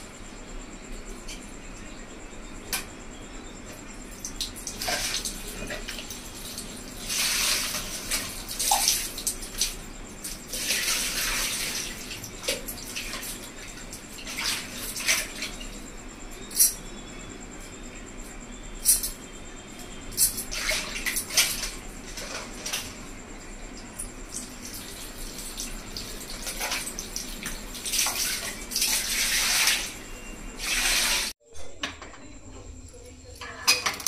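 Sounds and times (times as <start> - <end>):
water pouring and splashing: 4.2 - 15.8, 20.4 - 22.8, 24.2 - 30.0, 30.6 - 31.4.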